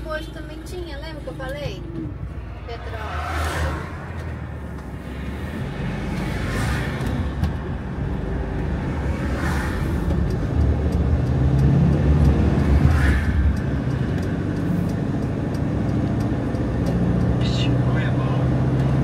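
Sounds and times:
vehicle engine and road noise: 0.0s - 19.0s
passing whooshes: 2.0s - 15.2s.

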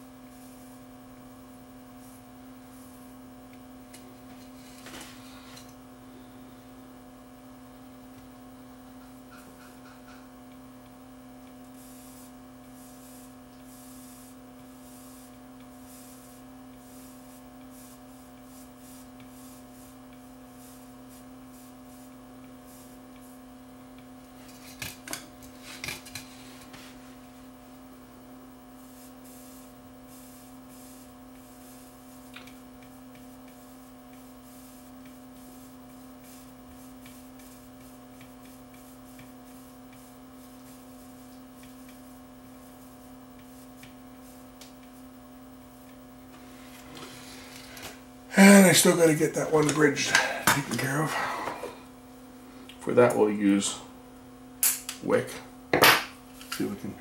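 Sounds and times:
electrical mains hum: 0.0s - 57.0s
soldering iron scraping pins: 3.8s - 5.8s, 9.0s - 27.4s, 28.6s - 51.8s.

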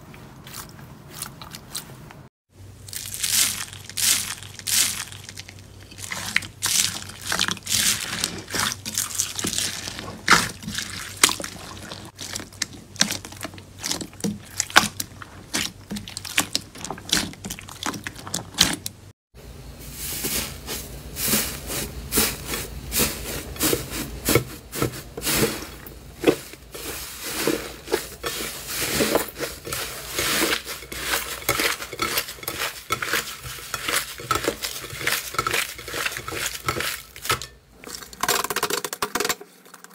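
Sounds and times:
thick slime squelching: 0.0s - 19.1s, 21.2s - 38.2s
slime crackling and popping: 2.8s - 18.8s.

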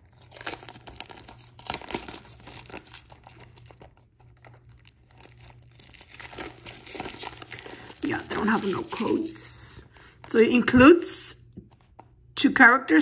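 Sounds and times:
plastic shrink-wrap tearing: 0.0s - 9.4s.

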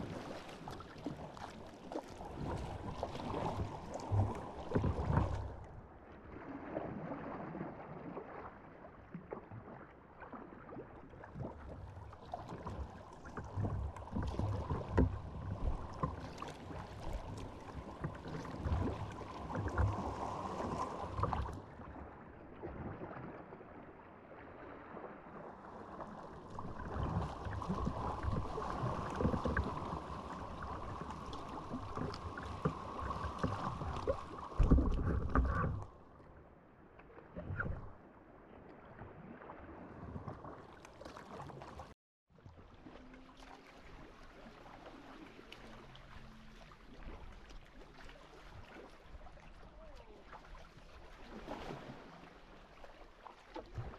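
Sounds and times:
water splashing around kayak: 0.0s - 53.9s.

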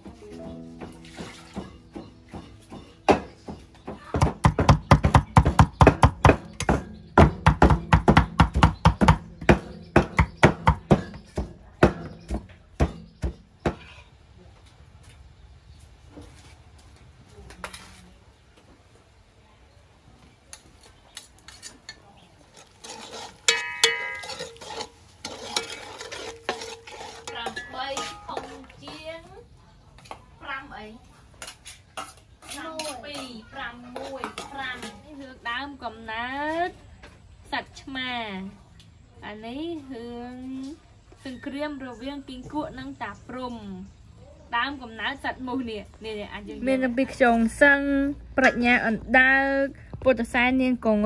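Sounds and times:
knife chopping on wooden board: 4.2s - 13.9s
ladle stirring and scraping pot: 20.8s - 29.1s, 31.3s - 35.4s.

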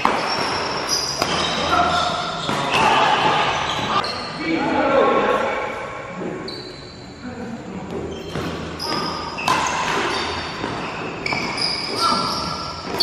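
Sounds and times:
racket hitting shuttlecock: 0.0s - 4.0s, 8.3s - 13.0s
shoes squeaking on court floor: 0.0s - 4.6s, 6.2s - 7.2s, 7.8s - 13.0s.

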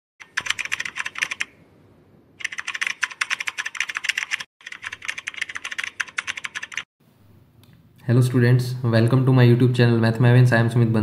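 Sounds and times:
keyboard typing clicks: 2.4s - 6.8s.

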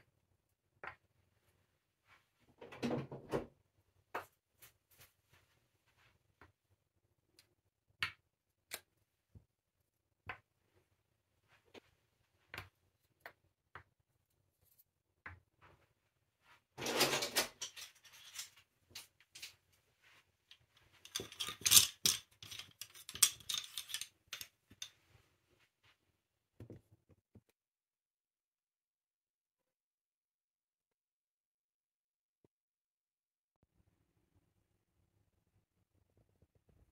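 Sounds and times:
wooden clattering: 21.0s - 24.8s.

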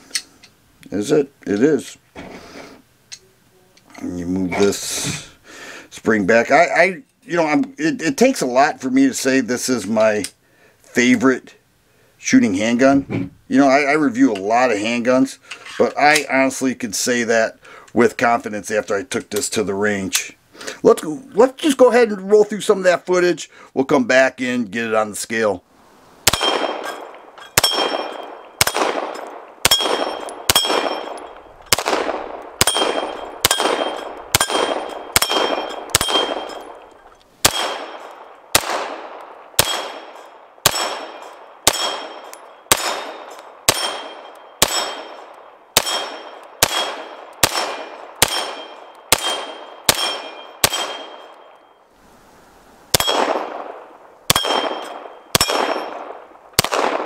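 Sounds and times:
pistol shots: 26.2s - 51.6s, 52.9s - 57.0s
steel plate target clanging: 26.3s - 31.8s, 32.6s - 38.2s, 39.6s - 51.8s, 54.3s - 56.0s.

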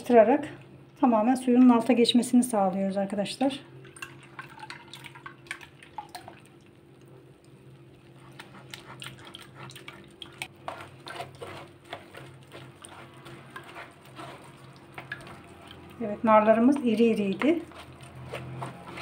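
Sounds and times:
juice dripping into glass bowl: 3.8s - 7.6s
wooden spoon scraping in metal sieve: 10.5s - 19.0s.

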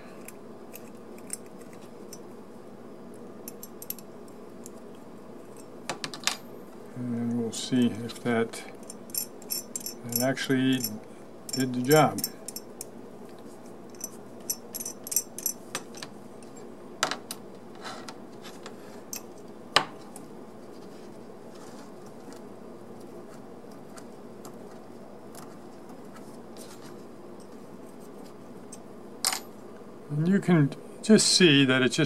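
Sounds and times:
steady low hum: 0.0s - 32.0s
small metal parts clicking and knocking: 8.8s - 12.7s, 13.9s - 16.1s.

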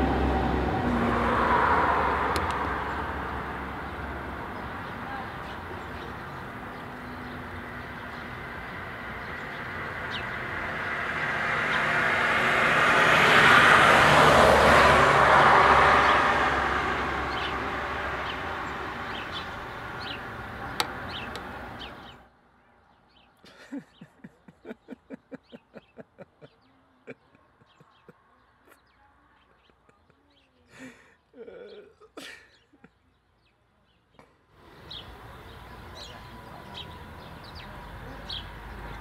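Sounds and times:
vehicle passing: 0.0s - 22.3s, 34.6s - 39.0s.

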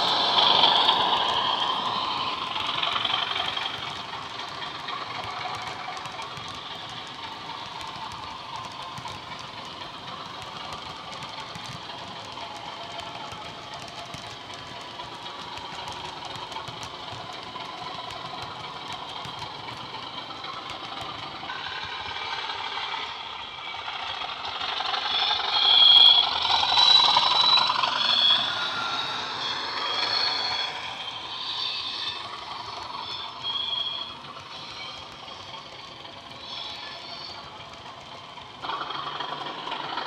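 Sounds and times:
model locomotive diesel engine sound: 0.0s - 40.0s
model train running on track: 0.0s - 40.0s.

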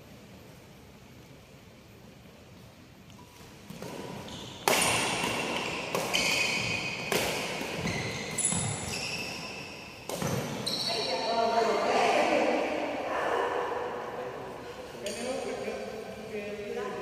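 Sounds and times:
racket hitting shuttlecock: 3.2s - 10.6s.

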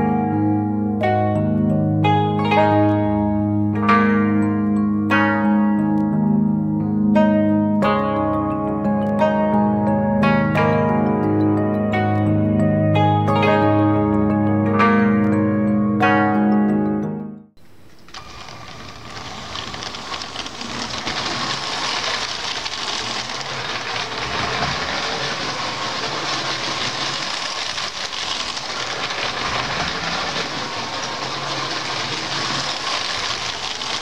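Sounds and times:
toy train motor whirring: 17.9s - 34.0s
wheels rattling on plastic track: 17.9s - 34.0s.

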